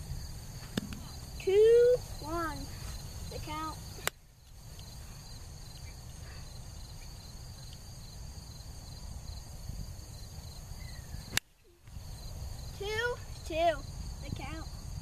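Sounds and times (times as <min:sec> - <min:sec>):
wind on microphone: 0:00.0 - 0:04.0, 0:06.8 - 0:15.0
insects chirping: 0:00.0 - 0:15.0
sharp click: 0:00.7 - 0:01.1.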